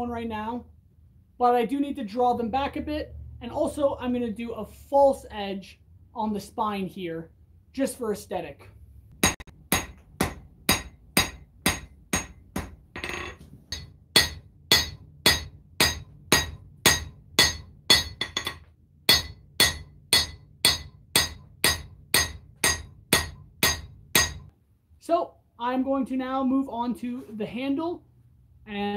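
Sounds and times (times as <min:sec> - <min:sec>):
hammer ringing on steel on anvil: 0:09.2 - 0:24.5.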